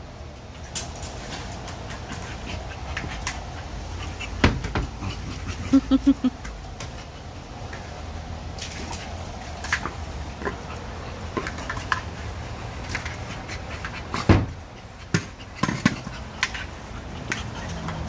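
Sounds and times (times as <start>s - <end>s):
dog panting: 13.1s - 18.0s.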